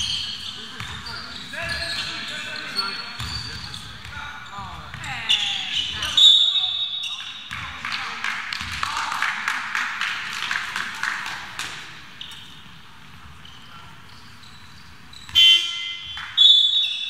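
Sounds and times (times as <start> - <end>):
basketball bounces: 0.0 - 2.2, 3.1 - 6.2, 7.4 - 9.0
shoe squeaks: 0.0 - 7.4, 12.2 - 12.7, 13.4 - 17.0
crowd noise and voices: 0.0 - 14.4
referee's whistle blast: 15.3 - 17.0.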